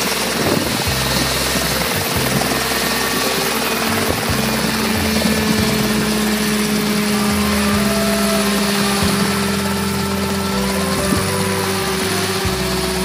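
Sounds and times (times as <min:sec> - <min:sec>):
helicopter engine and rotors droning: 0:00.0 - 0:13.0.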